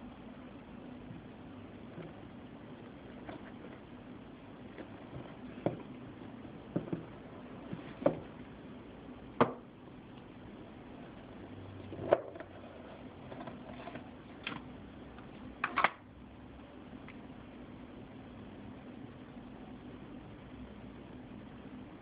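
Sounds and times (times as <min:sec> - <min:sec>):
cardboard box knocking on table: 0:06.7 - 0:07.1.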